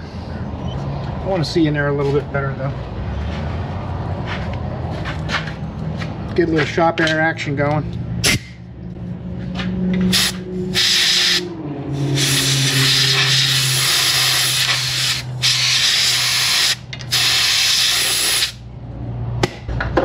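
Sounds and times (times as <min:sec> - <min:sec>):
air blow gun hissing: 0:10.1 - 0:18.6.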